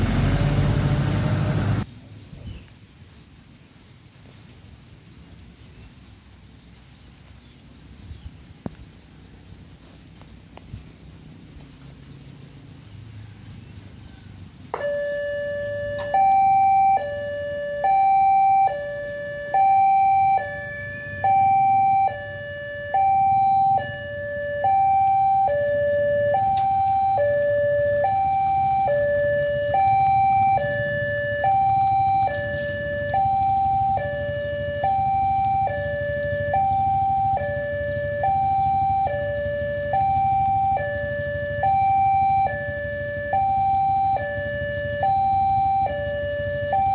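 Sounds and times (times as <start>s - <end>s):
two-tone level crossing alarm: 14.7s - 46.9s.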